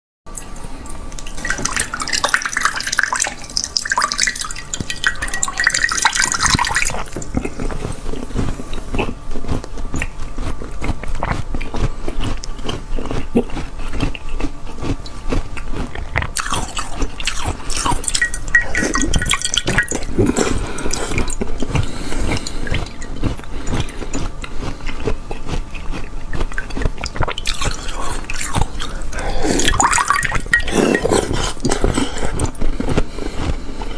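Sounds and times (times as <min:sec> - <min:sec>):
water dripping into glass dish: 0:00.3 - 0:07.4, 0:16.4 - 0:21.4, 0:22.4 - 0:24.0, 0:26.5 - 0:29.0, 0:29.6 - 0:31.1
ice being chewed: 0:00.3 - 0:33.9.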